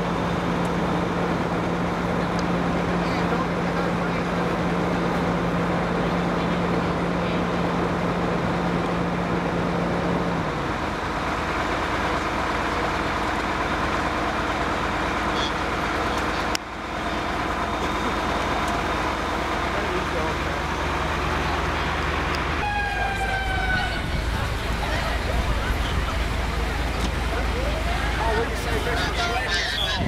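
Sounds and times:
vehicle engine idling: 0.0 - 30.0
low hum: 20.5 - 30.0.

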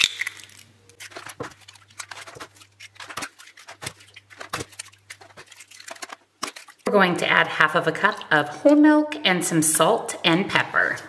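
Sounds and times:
eggs cracking into metal bowl: 0.0 - 8.4.

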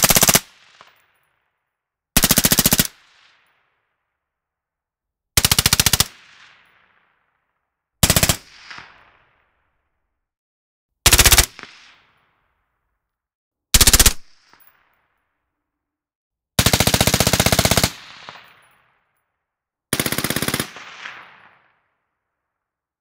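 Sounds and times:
suppressed automatic rifle bursts: 0.0 - 0.4, 11.1 - 11.5, 13.8 - 14.3.

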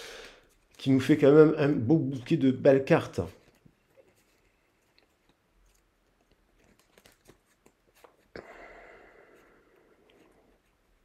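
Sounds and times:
cards ticking and crackling: 3.0 - 8.4.

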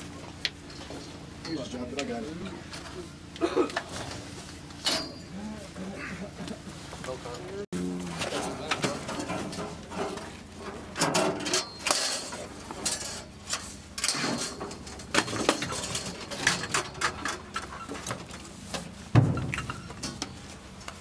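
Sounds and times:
metallic clanks and knocks: 8.3 - 20.4.

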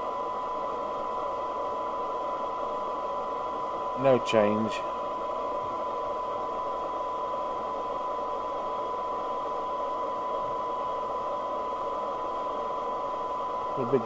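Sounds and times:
radio hiss: 3.9 - 6.2, 13.6 - 14.0
steady test tone: 13.4 - 14.0.

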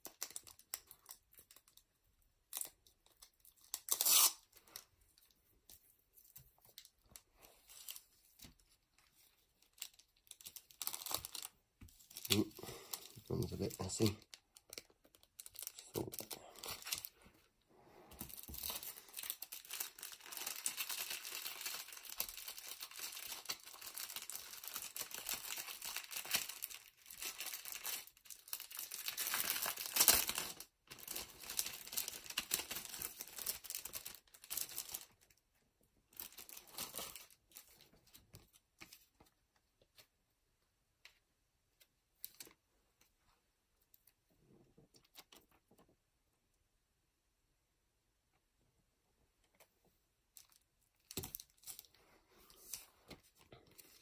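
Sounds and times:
plastic and foil wrapper crinkling: 0.0 - 17.5, 18.2 - 35.4, 36.1 - 40.1, 42.2 - 42.6, 50.3 - 54.0.

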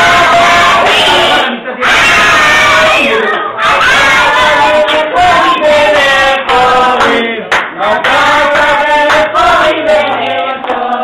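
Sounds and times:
children singing together: 0.0 - 7.2, 7.8 - 11.0
hand-clapping: 5.9 - 11.0.

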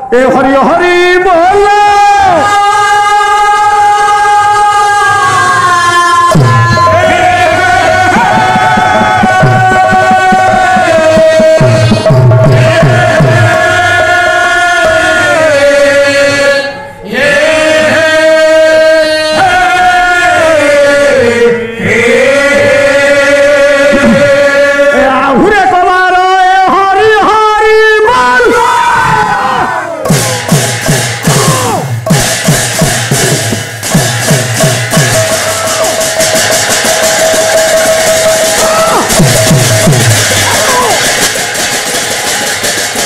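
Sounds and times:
singers chanting devotional notes: 0.0 - 43.0
hand drum strokes: 6.3 - 13.8, 30.0 - 43.0.

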